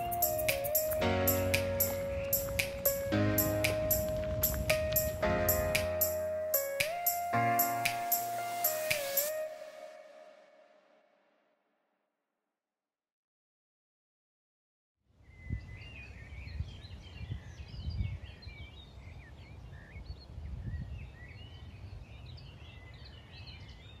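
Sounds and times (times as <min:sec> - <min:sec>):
songbirds chirping: 0:00.0 - 0:09.5
wind rumble on microphone: 0:02.0 - 0:05.7, 0:15.2 - 0:24.0.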